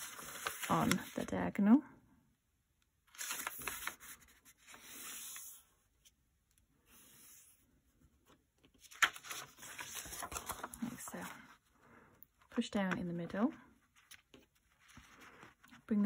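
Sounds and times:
paper being folded: 0.0 - 1.3, 3.1 - 5.7, 8.7 - 11.4.

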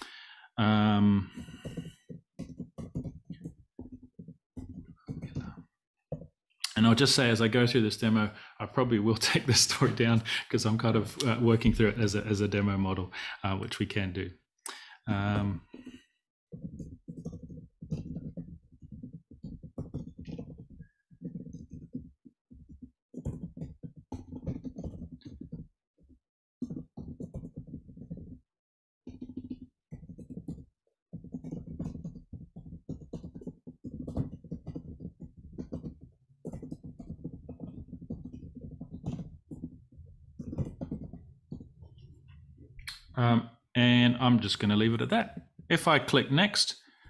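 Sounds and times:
computer keyboard typing: 1.2 - 7.4, 14.7 - 28.4, 29.1 - 43.1.

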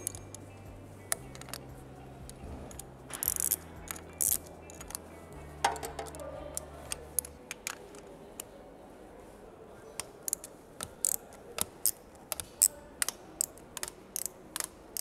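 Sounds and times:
low background music: 0.0 - 15.0
spanner clicking on bolts: 2.3 - 5.0, 10.3 - 15.0.

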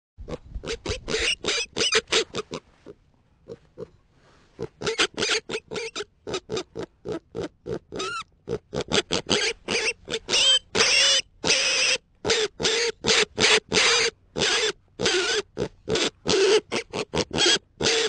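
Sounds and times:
wavering animal squeal: 0.7 - 2.4, 4.9 - 6.1, 8.0 - 8.3, 9.0 - 18.0.

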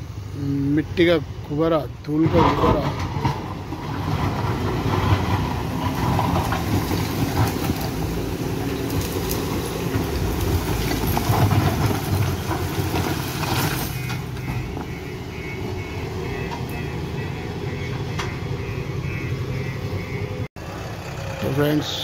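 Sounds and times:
diesel engine under load: 0.0 - 22.0
stones knocking and scraping: 2.3 - 14.9.

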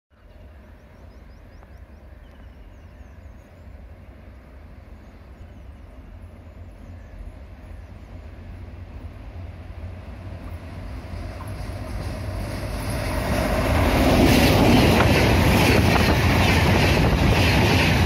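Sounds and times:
bird chirping: 0.2 - 3.8
train rumbling: 0.2 - 18.0.

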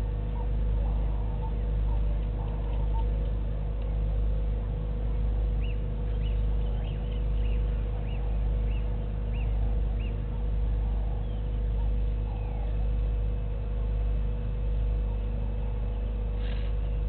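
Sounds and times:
low rumble with hum: 0.0 - 17.0.

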